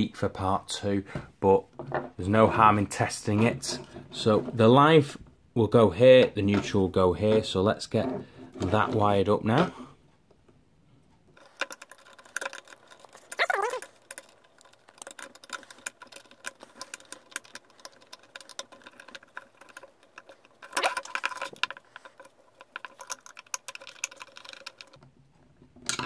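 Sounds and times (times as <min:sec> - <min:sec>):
wires and plastic parts handled: 0:06.1 - 0:10.4, 0:11.3 - 0:26.0.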